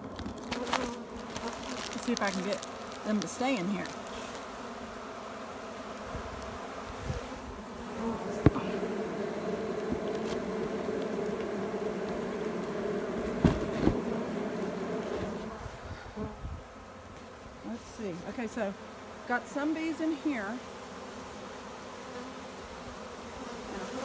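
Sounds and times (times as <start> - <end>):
honeybees buzzing: 0.0 - 24.0.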